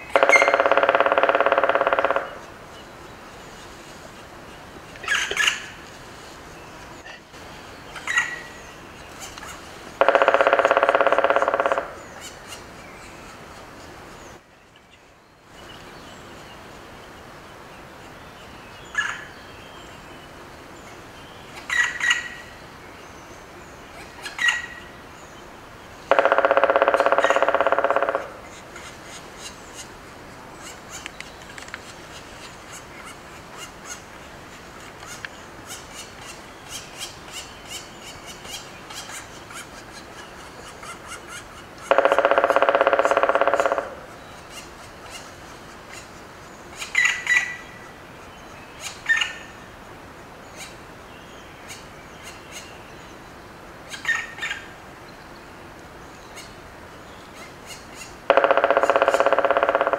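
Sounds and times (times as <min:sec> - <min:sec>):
woodpecker long calls: 0:00.0 - 0:03.2, 0:04.4 - 0:05.9, 0:07.0 - 0:13.9, 0:18.9 - 0:19.3, 0:21.5 - 0:22.6, 0:23.9 - 0:49.8, 0:53.9 - 0:54.8, 0:57.3 - 0:59.9
woodland birds chirping: 0:00.0 - 0:59.9.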